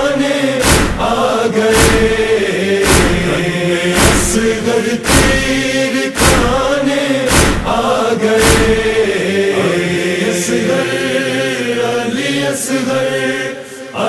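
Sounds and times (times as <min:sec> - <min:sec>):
heavy thumps: 0:00.0 - 0:09.1
chorus chanting a lament: 0:00.0 - 0:14.0.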